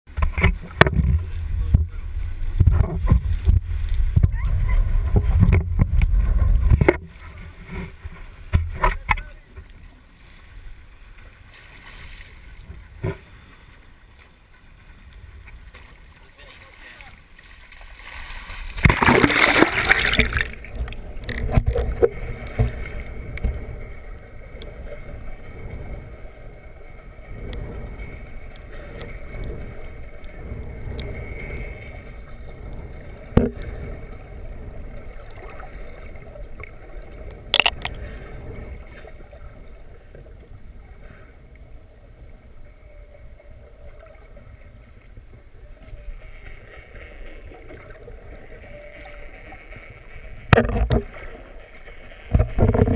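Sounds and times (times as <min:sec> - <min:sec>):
underwater gurgling rush: 0:00.1 - 0:09.2, 0:17.8 - 0:52.9
loud splash of water: 0:18.0 - 0:20.6, 0:37.5 - 0:38.0
sharp clicks: 0:37.6 - 0:38.0.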